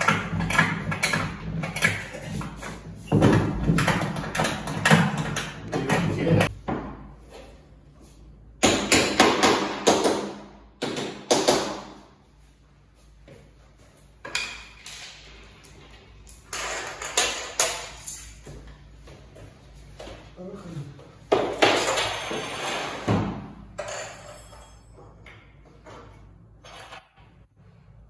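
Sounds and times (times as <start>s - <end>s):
furniture parts knocking and clattering: 0.0s - 7.5s.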